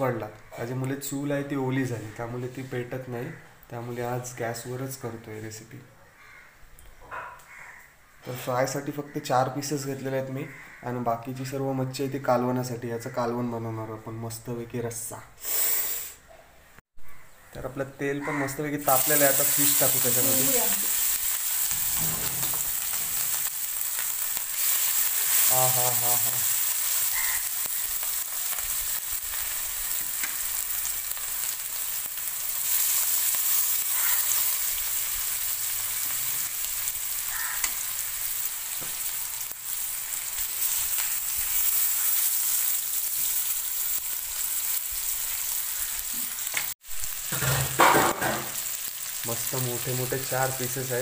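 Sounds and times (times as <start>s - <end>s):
fish sizzling in hot oil: 18.3s - 51.0s.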